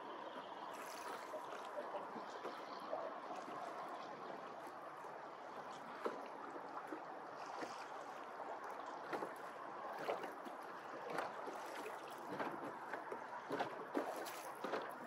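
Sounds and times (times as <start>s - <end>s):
small waves lapping against hulls: 0.0s - 15.0s
sharp water slaps: 11.1s - 15.0s.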